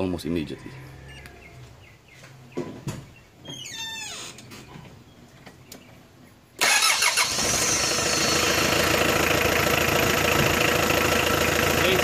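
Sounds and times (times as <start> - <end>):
diesel engine starting and running: 6.6 - 12.0.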